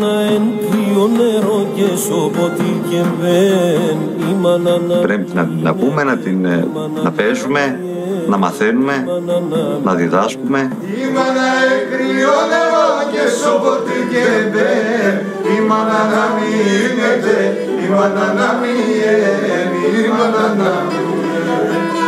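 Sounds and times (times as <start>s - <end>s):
man singing: 0.0s - 22.0s
bowed fiddle melody over drone: 13.6s - 22.0s.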